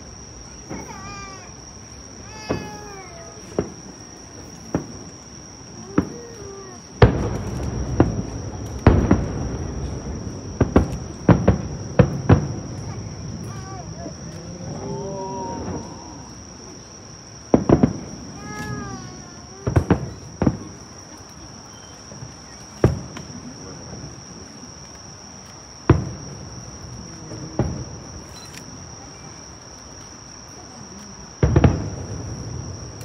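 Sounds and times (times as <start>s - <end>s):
high drone of insects: 0.0s - 33.0s
distant firework shells bursting: 2.3s - 5.2s, 5.8s - 14.0s, 17.5s - 18.9s, 19.6s - 21.0s, 31.4s - 33.0s.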